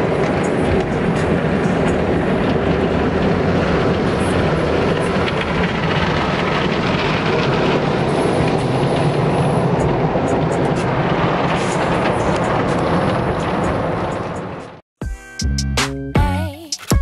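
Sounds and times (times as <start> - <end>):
car wash water spraying on car: 0.0 - 14.8.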